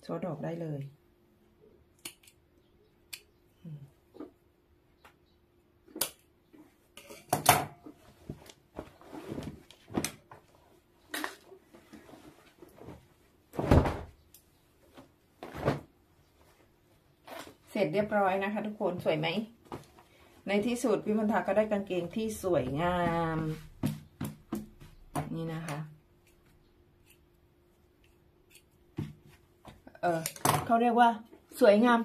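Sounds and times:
fabric rustling: 8.0s - 10.8s.

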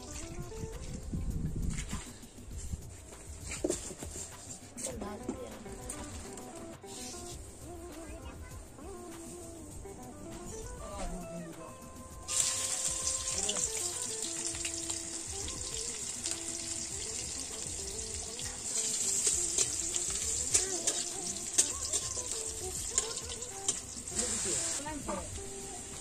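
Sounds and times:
oil sizzling in a wok: 12.3s - 26.0s.

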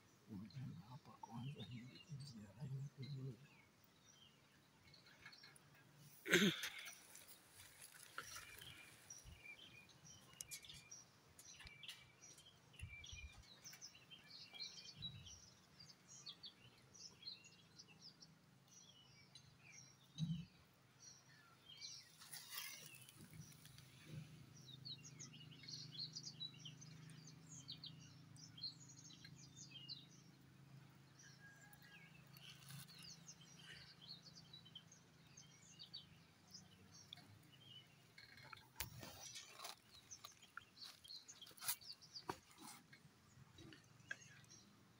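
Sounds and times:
birds chirping: 0.0s - 44.9s.

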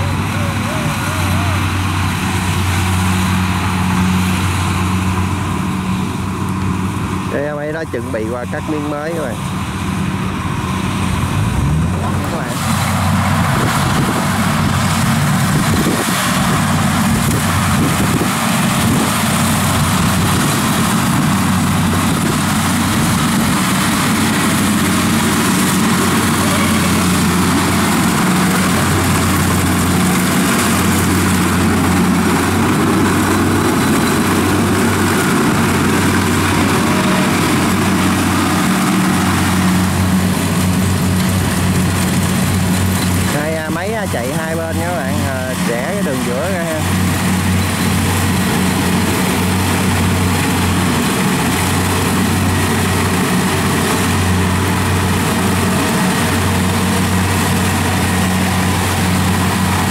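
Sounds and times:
combine harvester engine hum: 0.0s - 59.9s
threshing machinery noise: 0.0s - 59.9s.

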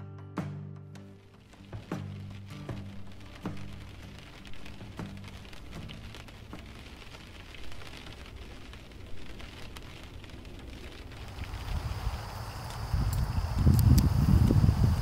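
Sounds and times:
rain tapping on window glass: 1.0s - 15.0s.

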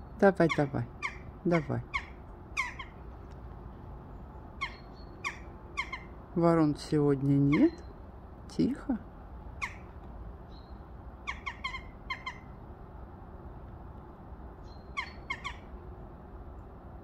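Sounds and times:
jackdaw calls: 0.0s - 3.1s, 4.5s - 6.2s, 9.6s - 12.6s, 14.6s - 15.8s
low background rumble: 0.0s - 17.0s.

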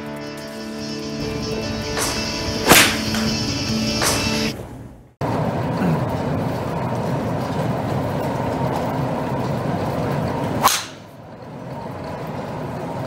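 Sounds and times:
faint hum: 0.4s - 13.0s
golf club striking ball: 1.2s - 4.6s, 10.6s - 11.1s.

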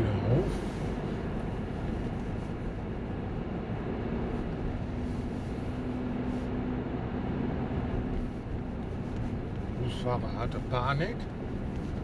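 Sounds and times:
car engine and tyre noise: 0.0s - 12.0s.

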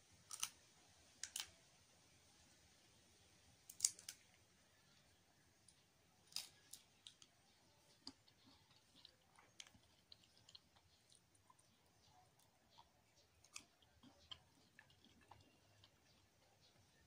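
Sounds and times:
peanut shell cracking: 0.3s - 0.6s, 1.2s - 1.6s, 3.7s - 4.2s
peanut shells crunching: 0.3s - 0.6s, 3.7s - 4.2s, 5.7s - 16.8s.

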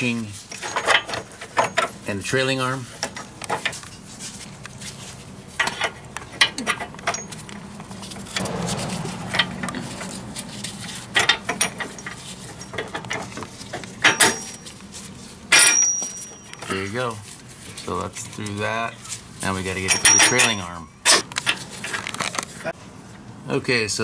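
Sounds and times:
rustling handling: 0.2s - 8.4s, 11.7s - 19.5s, 21.4s - 22.7s.

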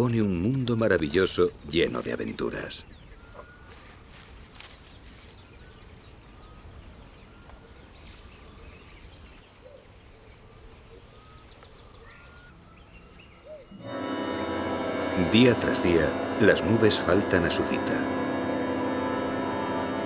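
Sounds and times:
high-pitched insect drone: 13.6s - 20.0s.

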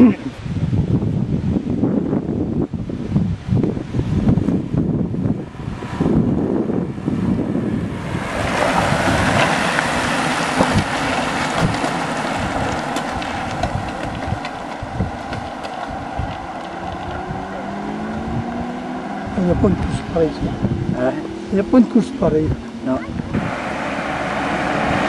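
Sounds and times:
wind buffeting microphone: 0.0s - 25.0s
motor vehicle engine: 3.8s - 25.0s
racing bicycles rushing past: 7.1s - 20.0s.

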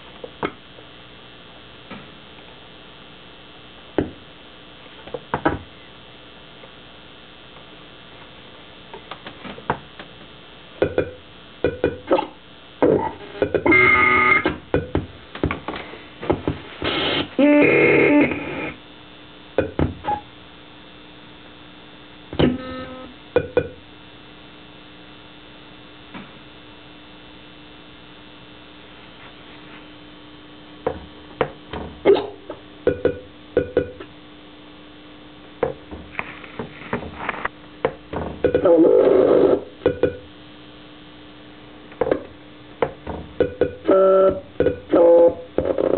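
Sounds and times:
steady low hum: 0.0s - 45.9s
stuttering buzzy electronic tones: 10.9s - 14.5s, 16.8s - 18.9s, 22.4s - 23.8s, 43.4s - 45.9s.

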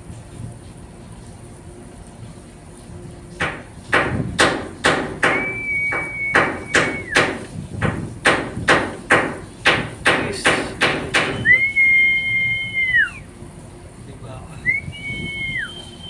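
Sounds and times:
rapid sharp knocks: 3.4s - 11.4s.

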